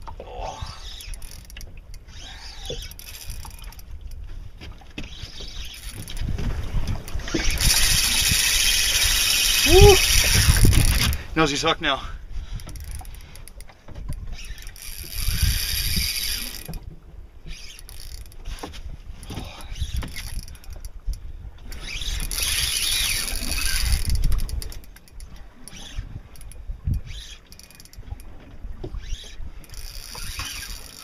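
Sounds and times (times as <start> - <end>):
fishing reel drag ticking: 0.4 - 4.3, 5.0 - 31.0
reel hiss: 7.4 - 11.3, 14.4 - 16.8.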